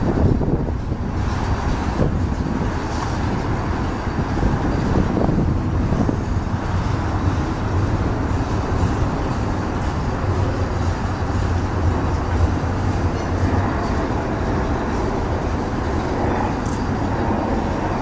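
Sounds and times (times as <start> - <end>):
diesel locomotives rumbling: 0.0 - 18.0.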